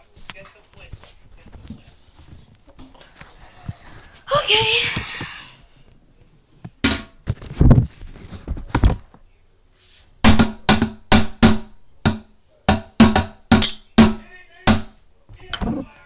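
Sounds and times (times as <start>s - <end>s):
drumsticks hitting a toilet: 6.8s - 7.2s, 10.2s - 15.8s.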